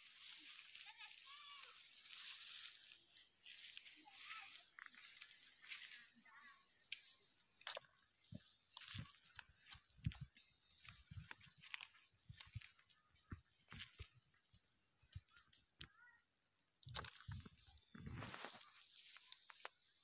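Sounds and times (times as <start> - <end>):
rustling of plants: 0.0 - 7.0, 8.4 - 14.6, 17.0 - 20.0
short chirping calls: 1.7 - 7.8
high-pitched insect drone: 1.8 - 7.8.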